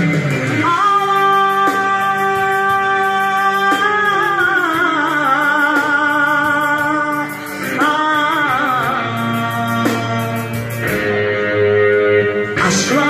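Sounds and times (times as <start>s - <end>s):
instrumental backing: 0.0s - 13.0s
woman singing with vibrato: 0.6s - 13.0s.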